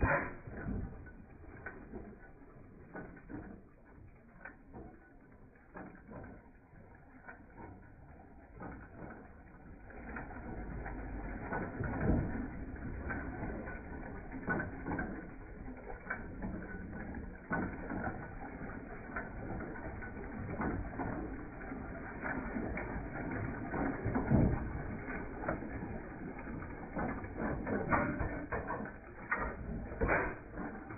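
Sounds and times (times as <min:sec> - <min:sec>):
old gas engine clicking: 0:00.0 - 0:30.9.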